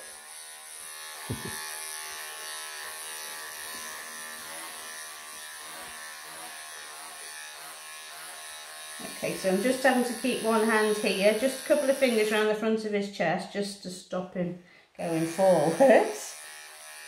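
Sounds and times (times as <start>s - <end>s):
electric pet clippers buzzing: 0.0s - 12.6s, 15.0s - 17.0s
soft bump: 1.3s - 1.6s.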